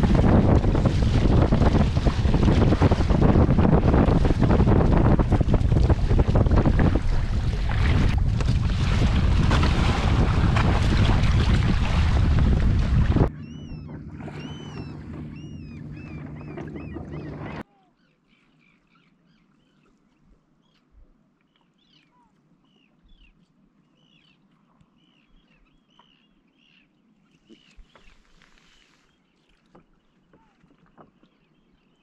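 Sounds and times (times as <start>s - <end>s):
wind and water rushing: 0.0s - 17.6s
bird calling high: 13.3s - 19.9s
small birds chirping: 13.3s - 20.0s.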